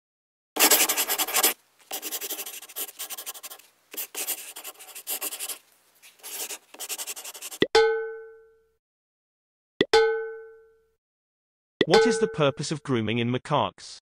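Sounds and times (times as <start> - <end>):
pen scratching on paper: 0.6 - 7.6.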